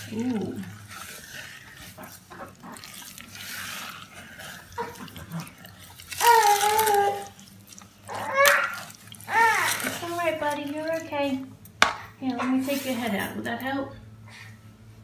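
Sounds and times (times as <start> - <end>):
wooden spoon stirring in saucepan: 0.0 - 13.5
child crying out: 6.2 - 7.3, 8.1 - 9.9.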